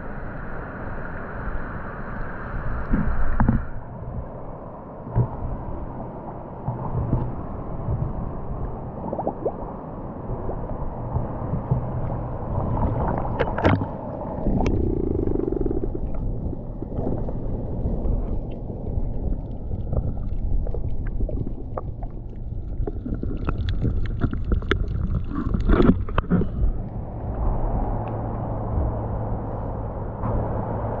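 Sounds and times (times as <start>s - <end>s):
muffled underwater rumble: 0.0s - 31.0s
underwater clicks and crackles: 2.8s - 3.8s, 5.1s - 5.6s, 6.6s - 29.3s
lapping water: 13.3s - 27.0s.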